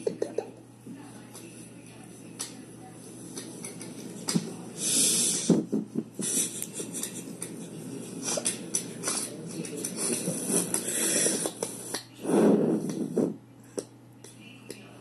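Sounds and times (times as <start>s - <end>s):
steady hiss: 1.8s - 13.4s.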